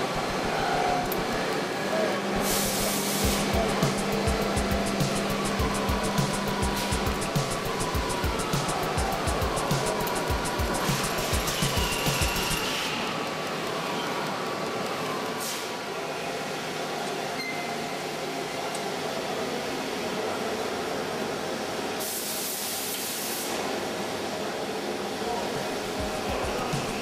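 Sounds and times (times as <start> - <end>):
workshop machine noise: 0.0 - 27.0
air hiss: 2.4 - 12.9, 22.0 - 23.6.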